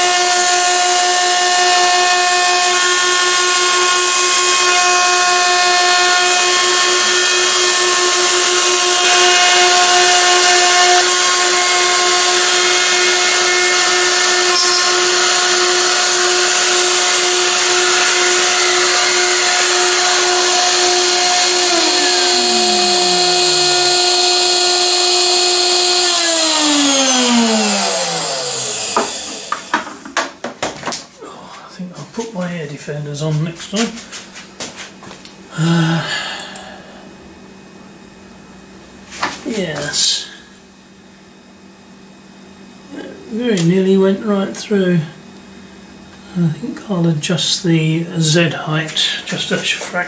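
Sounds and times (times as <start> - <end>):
router spindle whining: 0.0 - 30.0
shop vacuum hissing: 0.0 - 30.1, 33.7 - 37.6, 39.0 - 41.2, 42.9 - 50.0.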